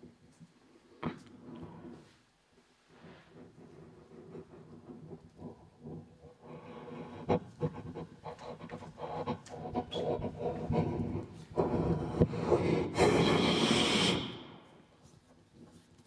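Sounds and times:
breathy panting: 3.3 - 13.4
clicks and rasping mouth noises: 3.4 - 14.4.

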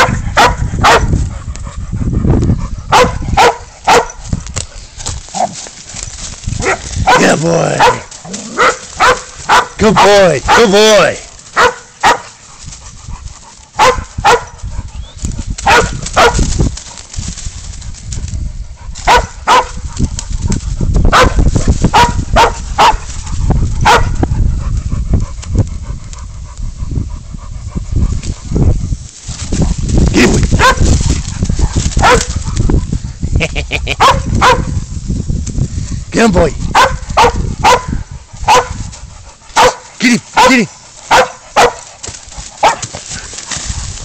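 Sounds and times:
dog barking: 0.0 - 1.1, 2.9 - 4.2, 6.6 - 10.8, 11.5 - 12.4, 13.8 - 14.6, 15.6 - 16.4, 19.0 - 19.8, 21.1 - 23.0, 23.8 - 24.2, 30.6 - 30.9, 32.0 - 32.4, 34.0 - 34.8, 36.7 - 38.8, 39.5 - 41.9, 42.6 - 42.9
low rumble: 0.0 - 7.1.

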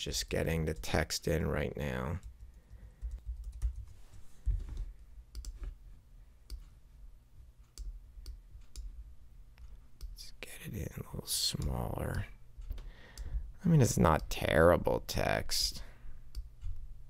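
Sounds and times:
keyboard keys clicking: 2.2 - 3.9.

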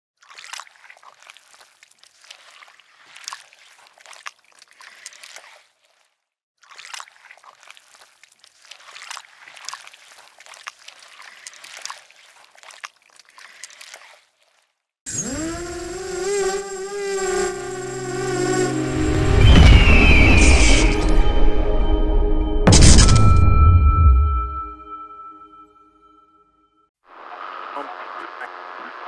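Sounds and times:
water trickling and splashing: 0.2 - 15.0.

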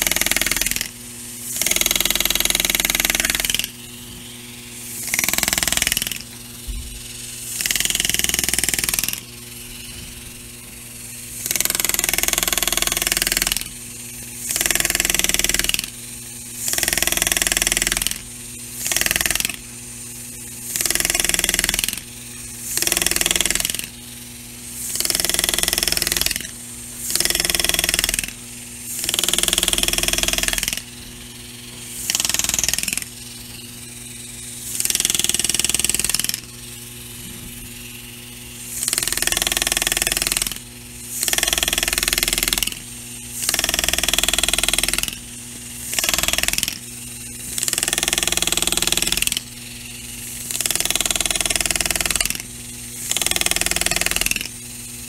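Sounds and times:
pneumatic engraving tool chattering: 0.0 - 55.0
steady low hum: 0.0 - 55.0.

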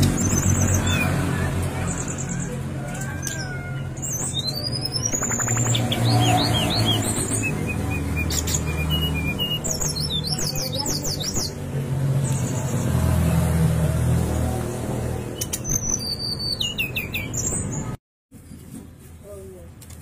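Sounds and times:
bird singing whistles: 4.1 - 11.5, 15.4 - 17.6.

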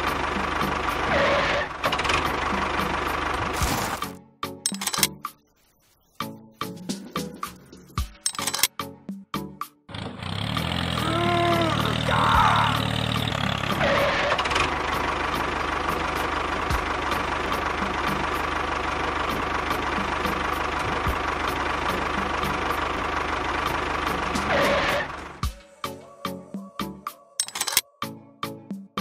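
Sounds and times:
tractor engine running: 0.0 - 5.1, 9.9 - 25.5, 27.4 - 27.8.

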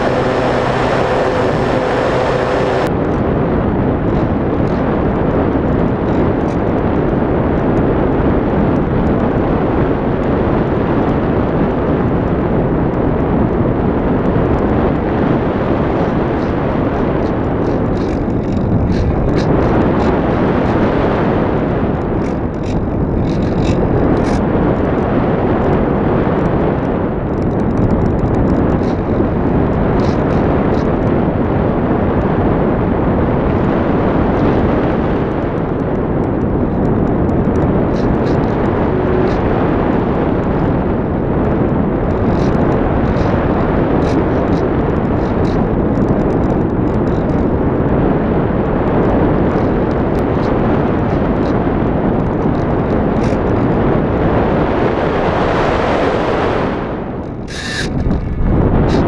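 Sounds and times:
rush of air: 0.0 - 3.0, 54.9 - 59.0
faint high ticks and rattles: 16.0 - 20.8, 22.0 - 24.4, 27.3 - 31.1, 35.6 - 39.5, 41.4 - 47.6, 49.5 - 53.7.

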